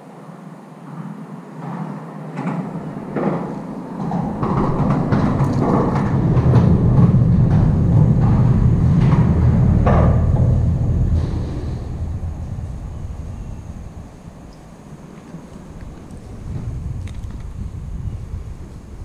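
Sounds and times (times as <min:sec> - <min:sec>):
scattered metal clanks: 0:02.4 - 0:12.7
heavy vehicle rumbling over bridge: 0:02.7 - 0:19.0.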